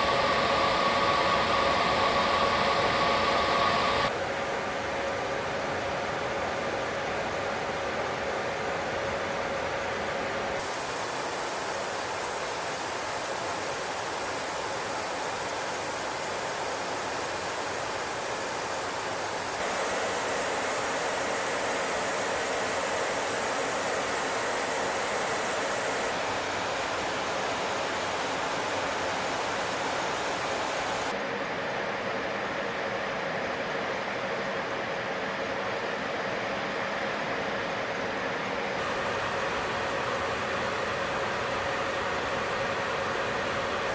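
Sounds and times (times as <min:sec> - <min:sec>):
cockpit airflow and jet engines: 0:00.0 - 0:43.9.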